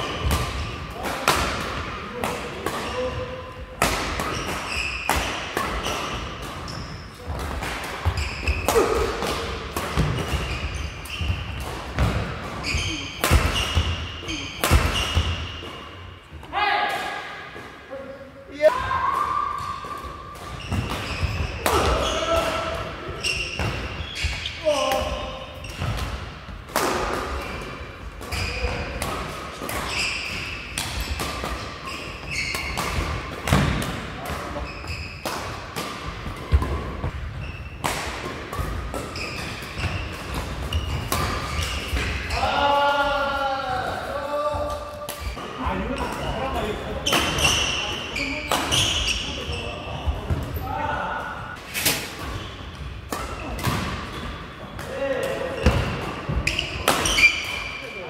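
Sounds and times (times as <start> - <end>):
rackets hitting shuttlecock: 0.1 - 16.0, 19.1 - 42.4, 47.0 - 49.3, 51.6 - 57.8
shoes squeaking on court floor: 4.1 - 16.2, 19.4 - 26.6, 27.3 - 29.1, 29.7 - 43.1, 44.3 - 58.0
rackets striking shuttlecock: 24.8 - 42.3.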